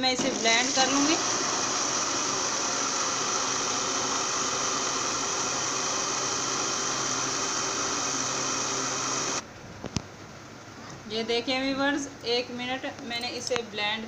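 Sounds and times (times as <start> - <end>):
electric blender running: 0.2 - 9.4.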